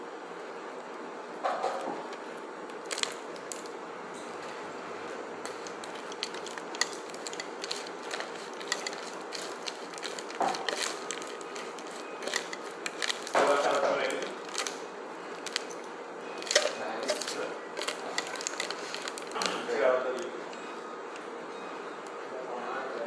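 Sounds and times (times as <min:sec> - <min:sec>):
fork scraping foil container: 0:05.4 - 0:14.8, 0:16.4 - 0:19.6
person chewing: 0:05.5 - 0:14.8.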